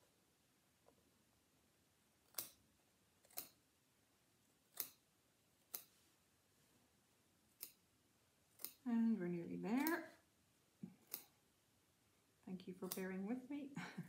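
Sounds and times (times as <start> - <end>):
scissors snipping: 2.3 - 2.6, 3.2 - 3.6, 4.7 - 6.0, 7.5 - 7.8, 8.6 - 8.9, 9.7 - 10.2, 10.8 - 11.4, 12.8 - 13.2.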